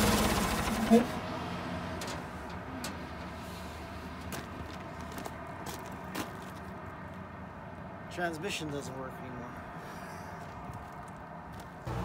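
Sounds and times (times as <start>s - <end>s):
footsteps on gravel: 4.2s - 7.2s, 10.4s - 11.9s.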